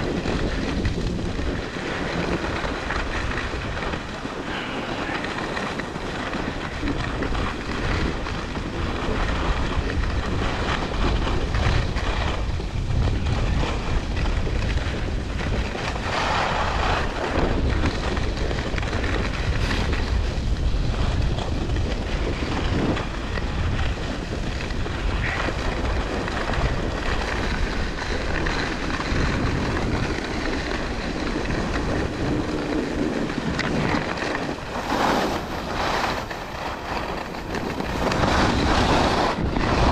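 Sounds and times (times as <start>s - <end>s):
wind rushing over microphone: 0.0s - 39.9s
skis hissing on snow: 34.6s - 39.4s.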